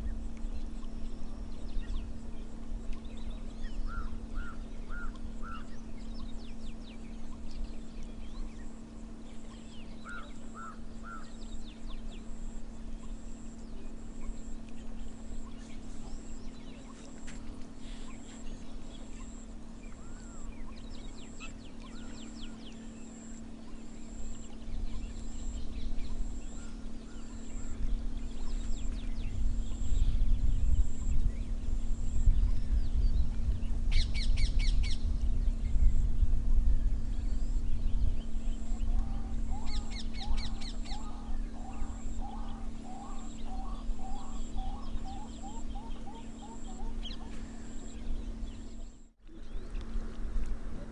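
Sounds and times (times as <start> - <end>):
wild birds calling: 0.0 - 33.0, 36.6 - 50.2
steady low hum: 0.0 - 50.9
low rumble: 24.0 - 50.9.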